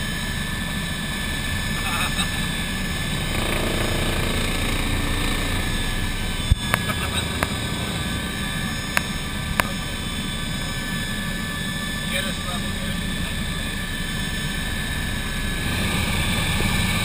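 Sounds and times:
helicopter rotor and turbine drone: 0:00.0 - 0:17.0
sharp clicks: 0:06.4 - 0:07.9.

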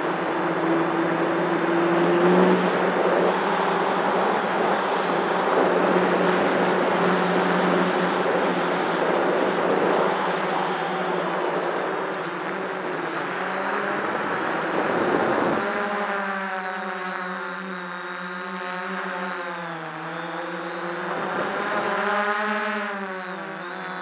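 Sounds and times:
drone motors whirring: 0:00.8 - 0:15.8.

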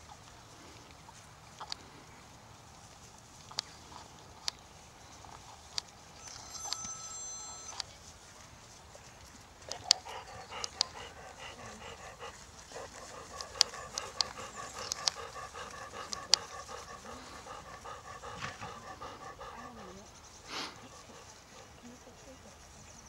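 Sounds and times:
animal panting: 0:09.0 - 0:23.0
sharp clicks: 0:13.3 - 0:16.9.

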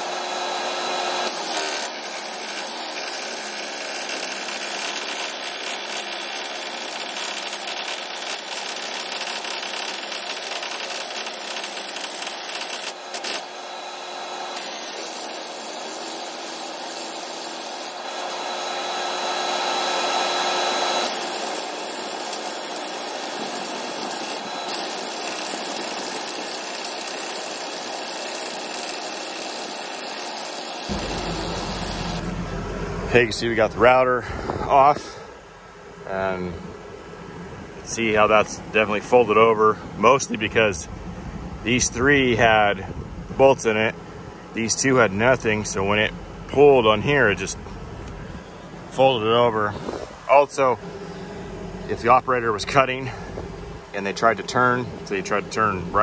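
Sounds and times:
air tool running: 0:00.0 - 0:33.0.

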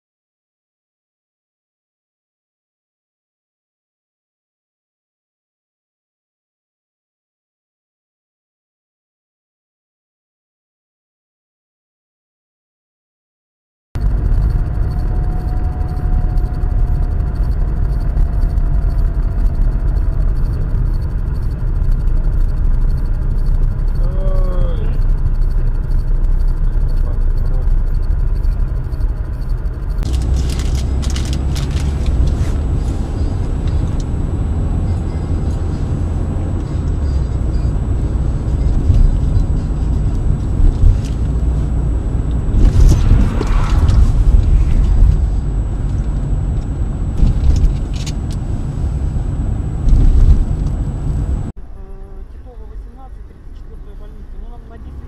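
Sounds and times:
vehicle road and engine rumble: 0:14.0 - 0:55.0.

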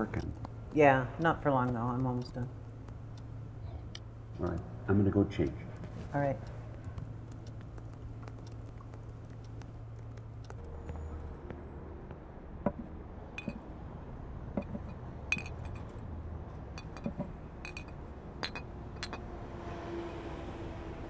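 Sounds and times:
low steady hum: 0:00.0 - 0:10.7
glass bottles clinking: 0:13.4 - 0:13.6, 0:14.6 - 0:15.9, 0:16.8 - 0:19.2.

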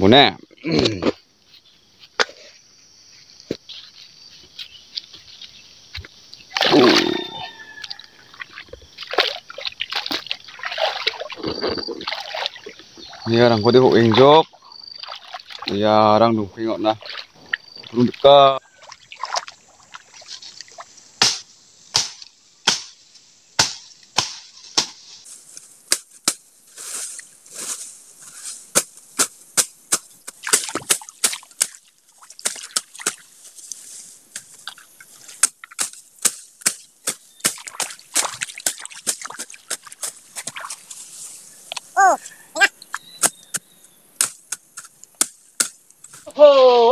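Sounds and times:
cutting tool chopping into soil: 0:21.2 - 0:23.0, 0:23.6 - 0:25.0, 0:35.4 - 0:40.6, 0:43.0 - 0:46.2.

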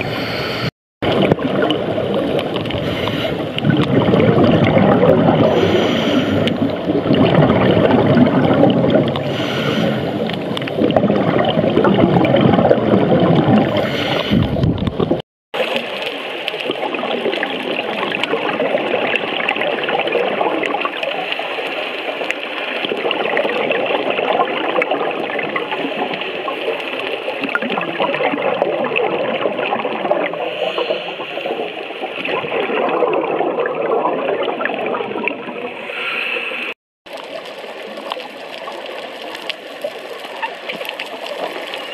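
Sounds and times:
diver breathing bubbles: 0:00.0 - 0:15.2, 0:20.9 - 0:36.8
underwater rushing and gurgling: 0:00.0 - 0:41.9.

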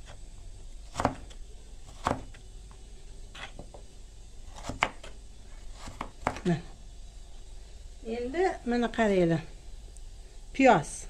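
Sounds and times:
knife chopping on wooden board: 0:00.9 - 0:01.3, 0:01.9 - 0:02.4, 0:04.5 - 0:05.1, 0:05.8 - 0:06.4.

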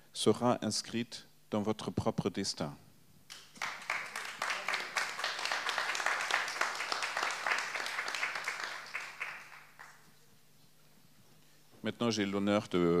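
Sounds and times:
audience applauding: 0:03.3 - 0:10.1.

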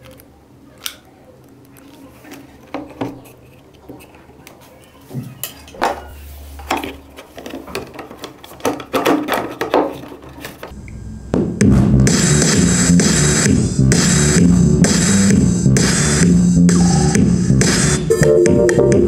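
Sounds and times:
plastic panels clattering: 0:05.5 - 0:10.7
loud music: 0:10.8 - 0:19.0.

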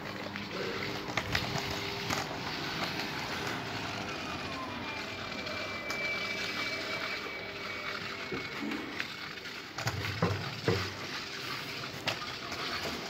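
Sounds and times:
motor vehicle passing: 0:00.5 - 0:06.9.

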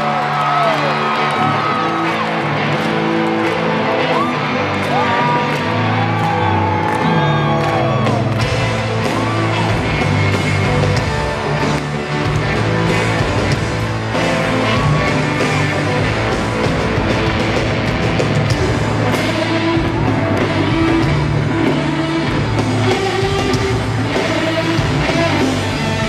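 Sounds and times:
crowd whooping: 0:00.0 - 0:10.4
live rock band playing: 0:00.0 - 0:26.0.

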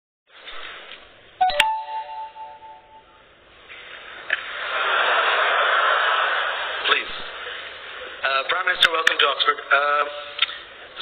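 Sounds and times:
electronic chime: 0:01.4 - 0:03.3.

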